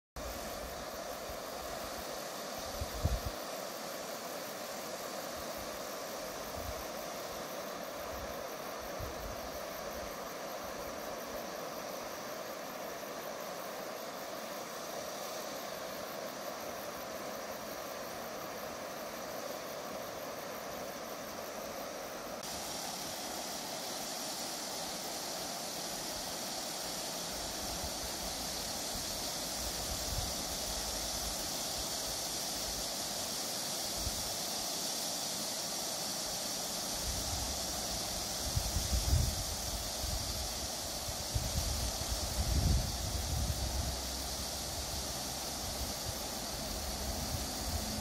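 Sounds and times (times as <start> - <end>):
outdoor ambient hiss: 0.0 - 48.0
wind rumble on microphone: 38.5 - 40.5, 41.1 - 44.2.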